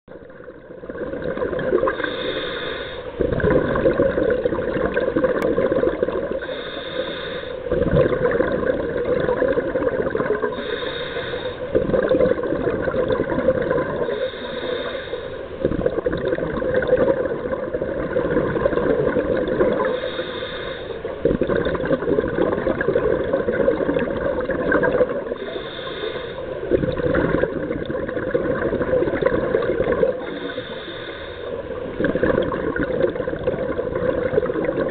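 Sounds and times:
exhaled bubbles rushing: 0.2s - 2.1s, 3.2s - 6.5s, 7.6s - 10.6s, 11.7s - 14.2s, 15.6s - 20.1s, 21.2s - 25.5s, 26.6s - 30.4s, 31.8s - 34.9s
diver breathing through regulator: 1.8s - 3.2s, 6.3s - 7.7s, 10.4s - 11.8s, 14.0s - 15.7s, 19.7s - 21.1s, 25.4s - 26.7s, 30.1s - 31.7s.

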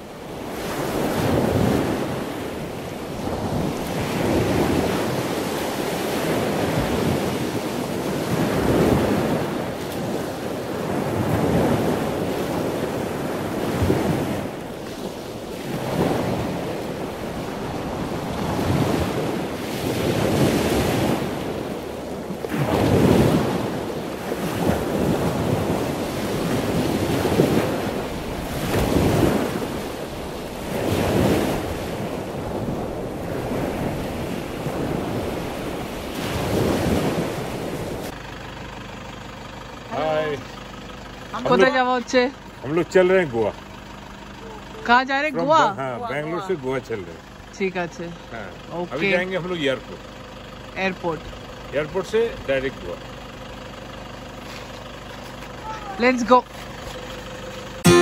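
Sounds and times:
wind buffeting microphone: 0.0s - 38.1s
sea surf washing in: 0.0s - 38.2s, 57.3s - 58.0s.

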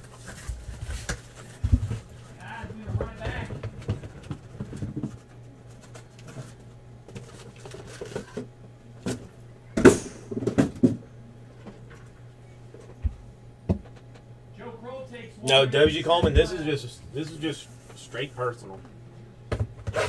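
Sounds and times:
boxes thumping: 0.2s - 5.3s, 9.8s - 11.0s.

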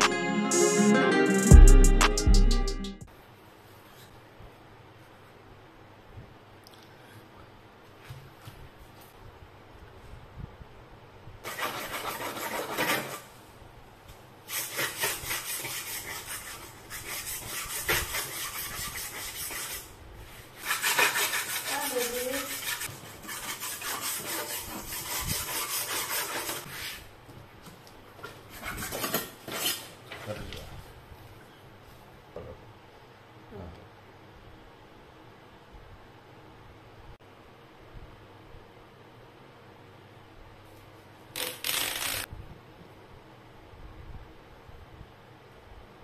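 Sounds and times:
flap disc sanding paint: 14.5s - 27.0s.

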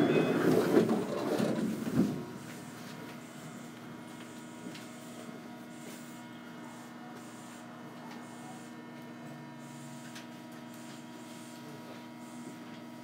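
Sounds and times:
electrical hum with tones: 0.0s - 13.0s.

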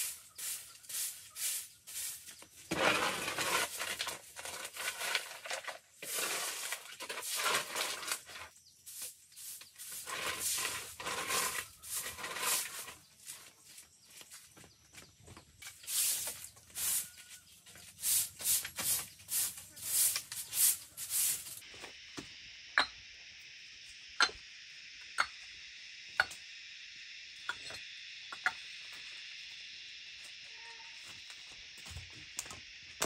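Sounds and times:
steady high hiss: 0.0s - 2.3s, 15.6s - 33.0s
rough strokes on wood: 0.0s - 13.5s.

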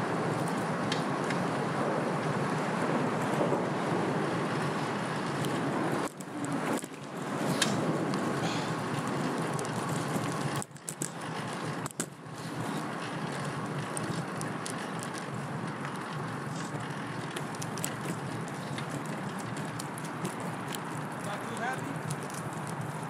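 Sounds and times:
bicycle tyres on road: 0.0s - 23.0s
small clicks: 9.0s - 23.0s.

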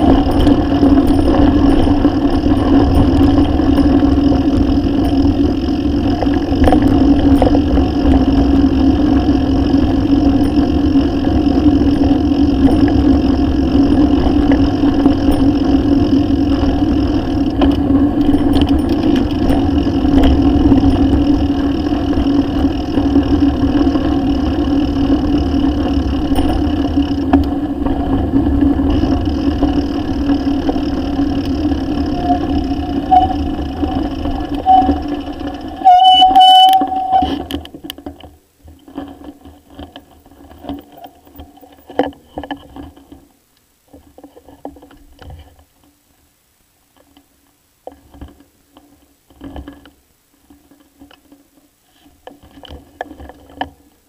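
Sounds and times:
tyres on gravel road: 0.0s - 54.0s
bicycle brakes squealing: 29.8s - 37.5s.

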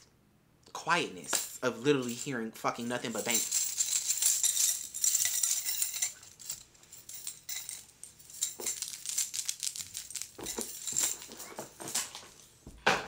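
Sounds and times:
small hard objects rattling: 3.0s - 12.4s.

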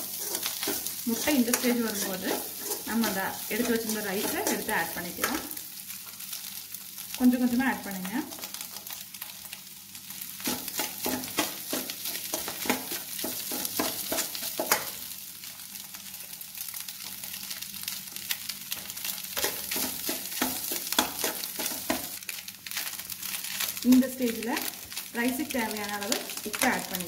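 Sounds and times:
steel spoon scraping a pan: 0.0s - 5.6s, 10.4s - 15.0s, 19.4s - 22.1s
egg sizzling in oil: 0.0s - 27.0s.

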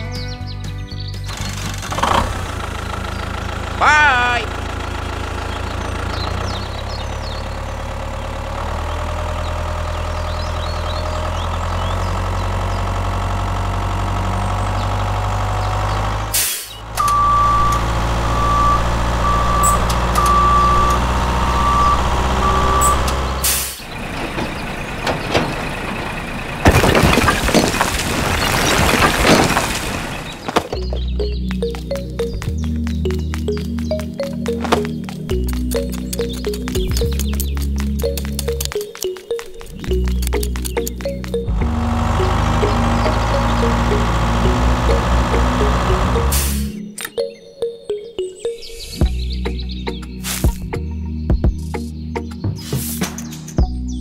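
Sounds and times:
diesel engine running: 0.6s - 47.0s
reversing alarm beeping: 17.0s - 23.6s
bricks tumbling from trailer: 24.2s - 31.0s.

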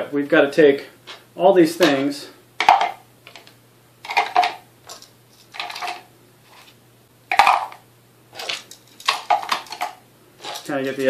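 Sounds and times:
plastic parts clicking and rattling: 2.6s - 6.1s, 8.5s - 10.0s.

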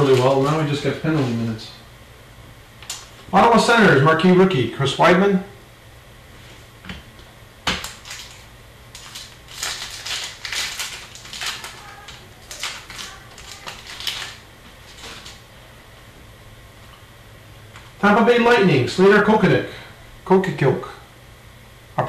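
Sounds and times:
trading cards crinkling and rustling: 0.0s - 1.4s, 7.7s - 15.4s.

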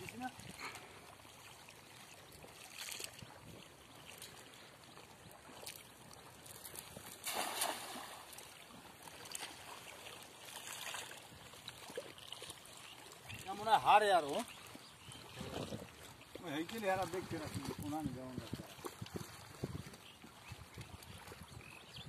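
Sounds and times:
net splashing on water: 7.0s - 11.2s.

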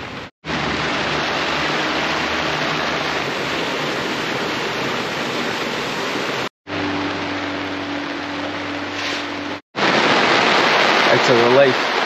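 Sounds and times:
heavy rain and wind: 0.0s - 12.0s.

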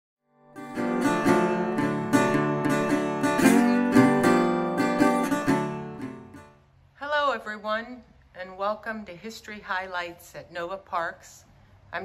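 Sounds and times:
acoustic guitar chords: 0.3s - 6.7s.

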